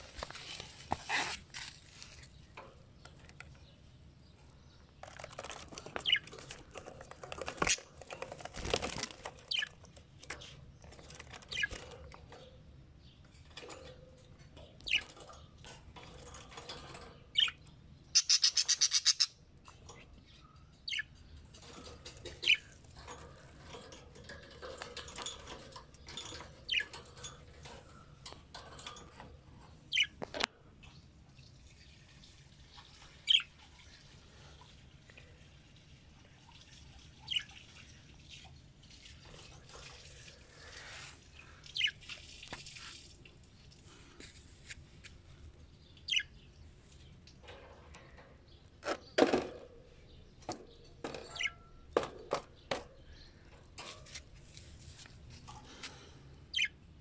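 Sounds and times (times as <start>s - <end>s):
harsh rapid bird chatter: 2.2s - 30.5s, 37.0s - 43.2s, 43.9s - 56.8s
budgerigars chirping: 18.2s - 19.4s, 56.5s - 56.7s.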